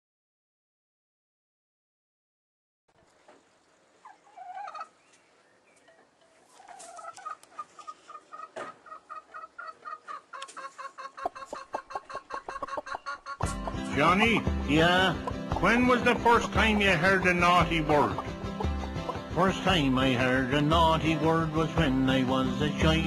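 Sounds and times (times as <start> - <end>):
hen clucking: 3.2 - 20.9.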